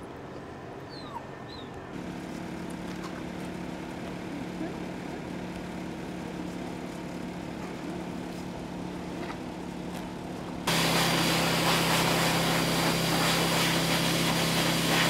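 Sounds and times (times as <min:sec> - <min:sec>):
low motor hum: 0:00.0 - 0:15.0
dog grooming dryer rushing: 0:10.7 - 0:15.0.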